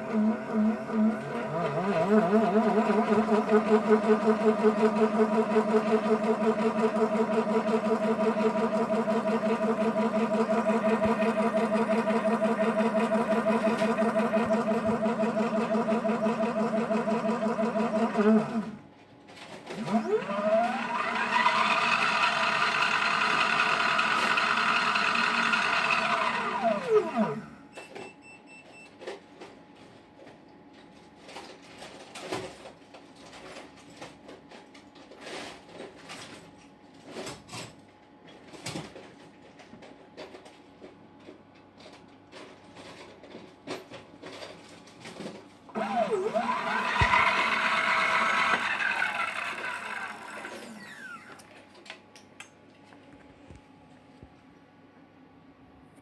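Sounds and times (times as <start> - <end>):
electric motor whine spinning up: 0.0 - 18.8, 19.9 - 27.5, 45.8 - 51.4.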